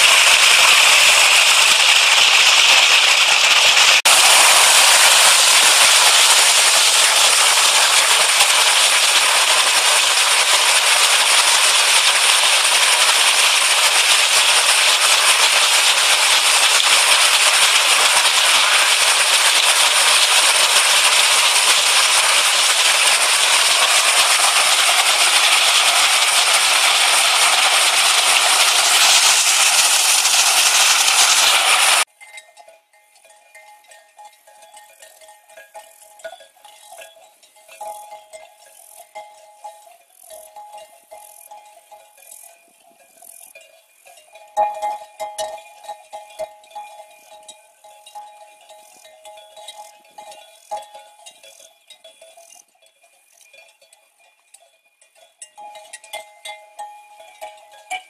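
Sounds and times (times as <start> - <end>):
water rushing over rocks: 0.0 - 32.1.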